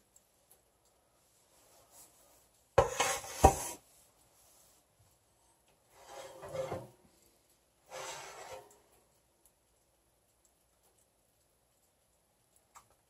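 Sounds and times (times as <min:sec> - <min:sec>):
metal pans clattering: 0:02.8 - 0:03.8, 0:06.0 - 0:07.0
pan scraping over oven rack: 0:02.8 - 0:03.8, 0:06.0 - 0:07.0, 0:07.9 - 0:08.7.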